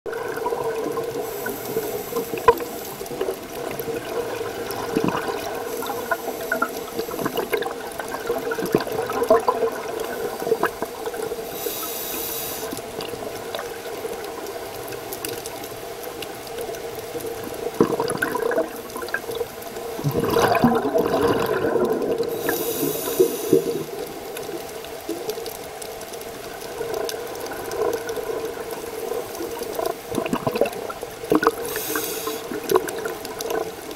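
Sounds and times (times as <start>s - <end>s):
rush of exhaled bubbles: 0.1s - 11.8s, 17.4s - 25.2s, 26.6s - 33.9s
steady underwater hum: 0.1s - 33.9s
diver inhaling through regulator: 11.4s - 12.8s, 22.3s - 23.9s, 31.6s - 32.6s.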